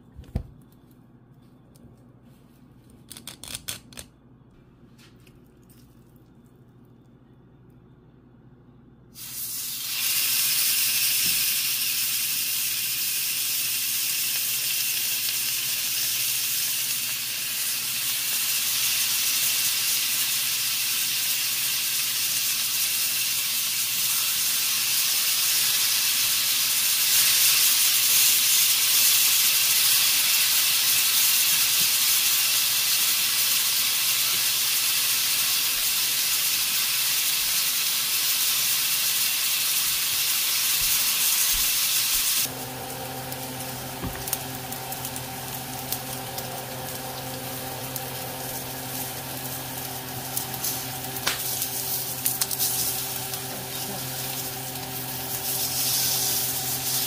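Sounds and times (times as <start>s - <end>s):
steaks sizzling in a pan: 9.2s - 57.0s
low hum: 42.5s - 57.0s.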